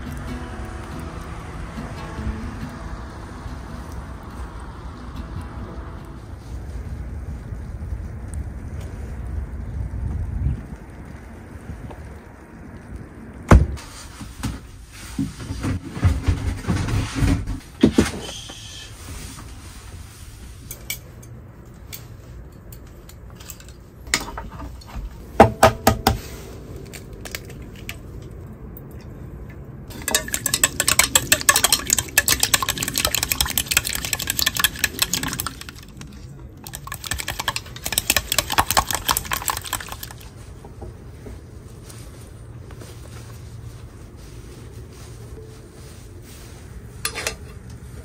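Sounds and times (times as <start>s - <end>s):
sharp knocks: 25.4s - 26.2s
chopsticks beating egg in metal bowl: 29.9s - 40.2s.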